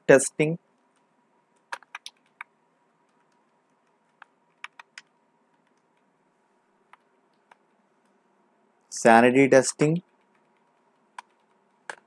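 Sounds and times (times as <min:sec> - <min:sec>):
keyboard typing: 0:00.8 - 0:06.1, 0:06.9 - 0:07.8, 0:09.9 - 0:12.0.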